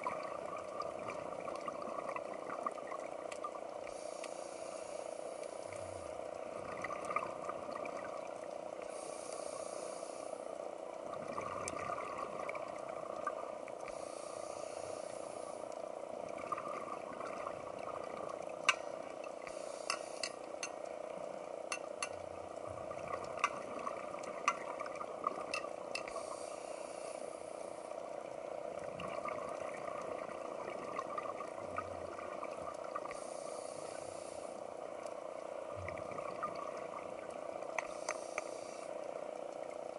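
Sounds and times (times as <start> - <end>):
underwater hiss: 3.8 - 7.8, 8.5 - 20.9, 25.9 - 39.8.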